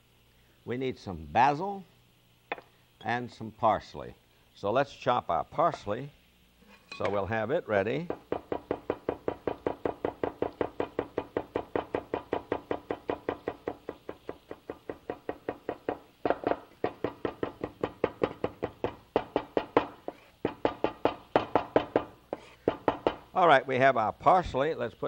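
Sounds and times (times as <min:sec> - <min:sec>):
cleaver chopping on wooden board: 0:08.1 - 0:23.2.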